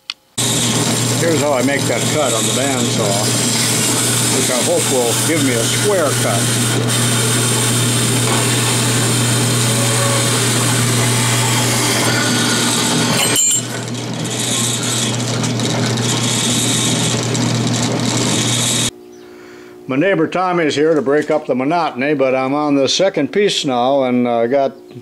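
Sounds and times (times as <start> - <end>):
bandsaw cutting sheet steel: 0.4 - 18.9.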